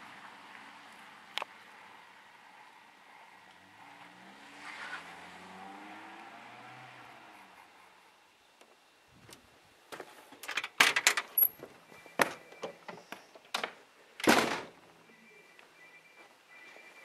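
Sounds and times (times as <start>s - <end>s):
door thud: 13.6s - 14.8s.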